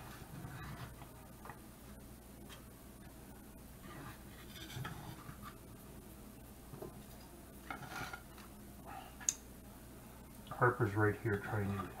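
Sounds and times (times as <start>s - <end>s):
spatula scraping skillet and plate: 3.8s - 5.5s, 7.7s - 8.3s.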